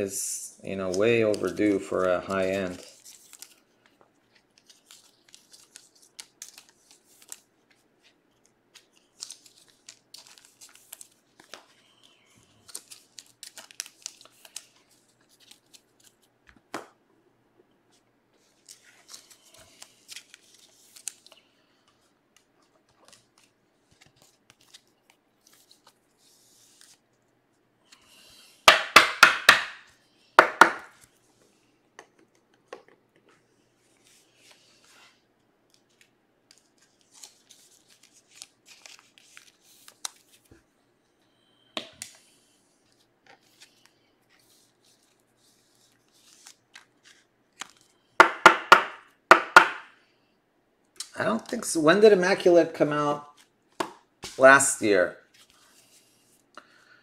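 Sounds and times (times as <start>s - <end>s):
trading cards rustling and sliding: 0.8s - 16.3s, 17.9s - 27.1s, 31.0s - 40.6s, 42.0s - 48.1s, 54.2s - 56.5s
faint steady hum: 29.8s - 48.2s.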